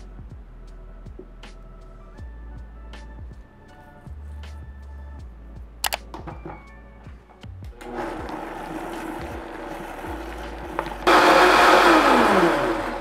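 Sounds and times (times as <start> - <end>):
blender motor running: 7.8 - 13.0.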